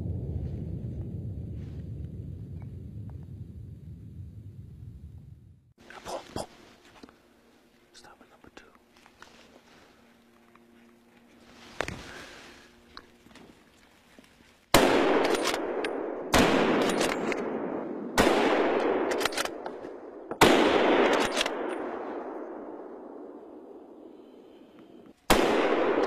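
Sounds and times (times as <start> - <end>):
rifle shots with echo: 14.7 - 24.1, 25.3 - 26.0.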